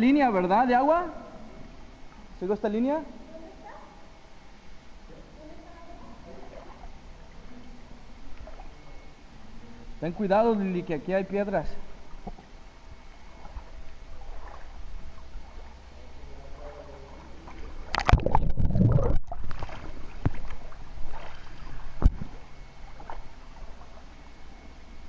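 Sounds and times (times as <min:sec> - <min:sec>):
water splashing and sloshing: 0:06.3 - 0:09.1, 0:11.8 - 0:24.7.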